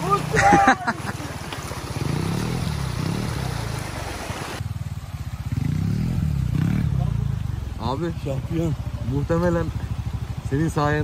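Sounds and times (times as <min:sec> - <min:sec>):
engine running at low revs: 0:01.3 - 0:11.0.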